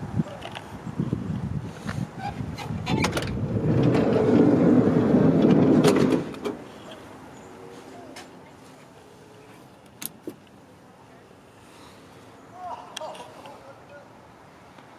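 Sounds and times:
sliding door rumbling scrape: 2.2s - 6.5s.

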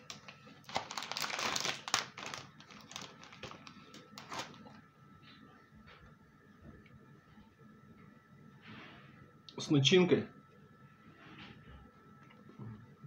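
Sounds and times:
cookie packet crinkling: 0.0s - 4.8s.

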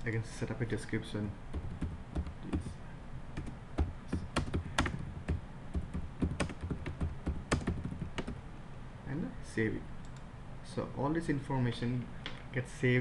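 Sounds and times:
keyboard typing clicks: 3.4s - 8.4s.

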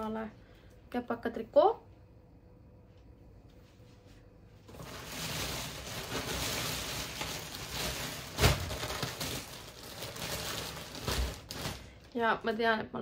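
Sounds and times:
clothes and packaging rustling: 3.7s - 12.7s.

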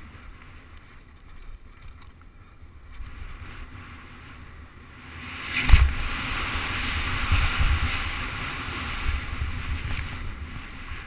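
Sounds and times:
wind rushing over microphone: 0.0s - 11.0s
mountain bike rattling: 5.1s - 11.0s.

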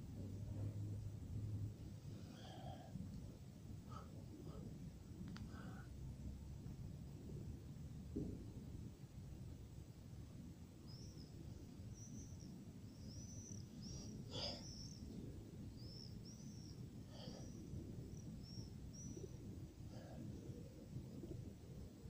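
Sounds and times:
low background rumble: 0.0s - 22.0s
bird chirping: 10.9s - 15.1s, 15.8s - 19.3s.

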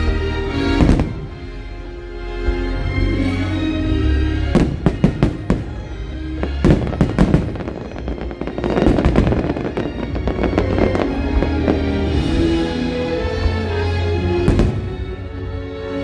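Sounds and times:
show music: 0.0s - 16.0s
fireworks bangs: 0.8s - 1.4s, 4.6s - 12.8s, 14.4s - 15.2s
fireworks crackling: 4.6s - 15.2s.

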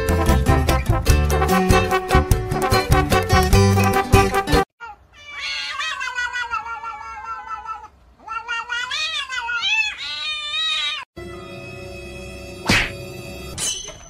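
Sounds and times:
cat yowling: 4.8s - 11.1s.

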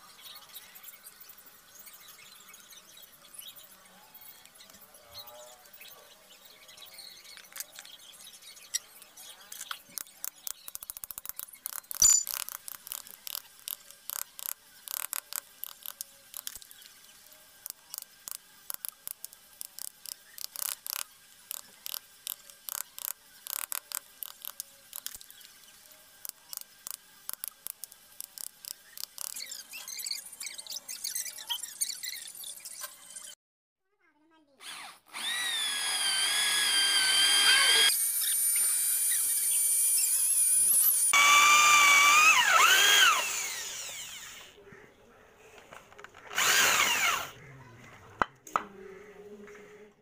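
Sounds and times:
chisel cutting wood: 17.6s - 25.3s, 34.6s - 44.6s, 46.2s - 47.4s.

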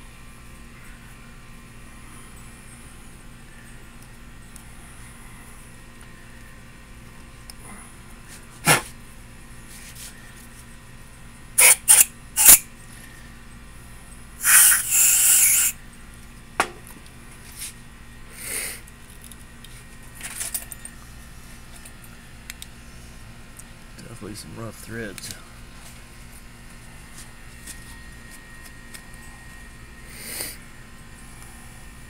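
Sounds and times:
aerosol can hissing: 11.6s - 12.6s, 14.4s - 15.8s.

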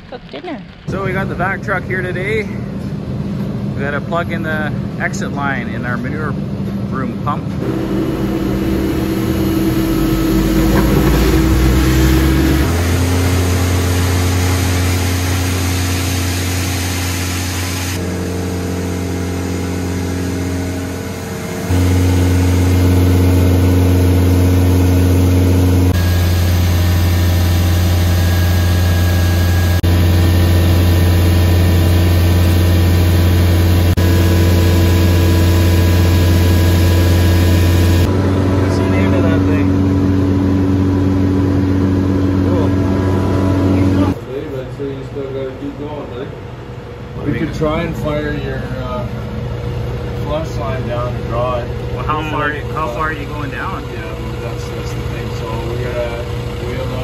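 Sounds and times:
vacuum truck suction pump humming: 7.6s - 44.2s.

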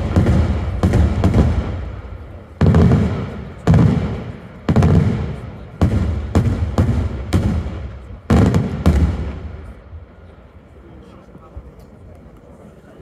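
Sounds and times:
fireworks bangs: 0.0s - 10.2s.

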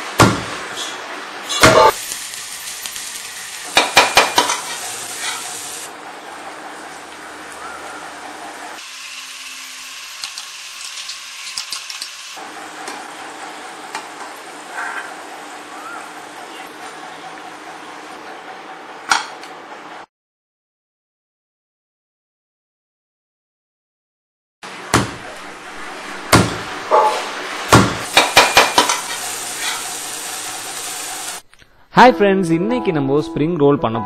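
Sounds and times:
food deep-frying in hot oil: 1.5s - 17.9s, 25.9s - 31.4s.

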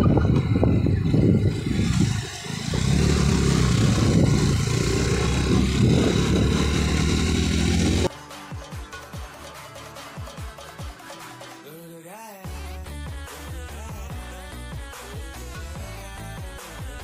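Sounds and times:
road and wind noise: 0.0s - 8.1s
scooter engine running: 0.0s - 8.1s.

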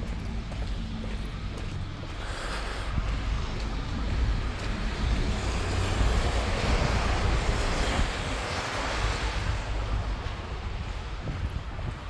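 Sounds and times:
wind rumble on microphone: 0.0s - 12.0s
tyre hiss on wet road: 2.2s - 3.8s.

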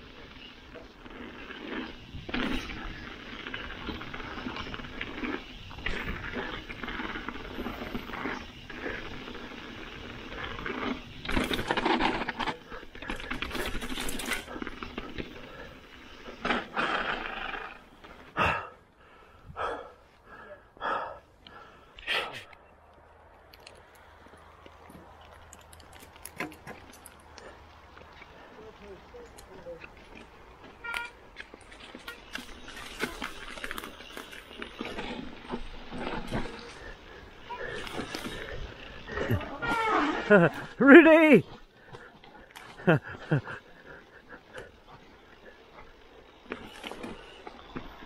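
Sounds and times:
bike tyre scrapes: 0.0s - 18.3s, 29.8s - 40.8s
bike clattering over rough ground: 0.0s - 18.4s, 23.5s - 40.8s, 41.4s - 48.0s
bike tyres rumbling over earth: 0.0s - 18.8s, 23.8s - 40.8s.

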